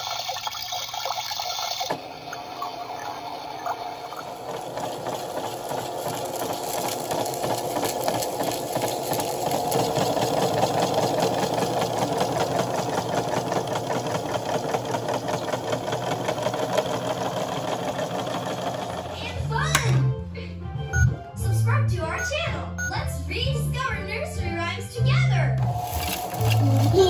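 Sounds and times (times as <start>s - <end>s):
toy washing machine motor whirring: 0.0s - 19.4s, 25.6s - 27.0s.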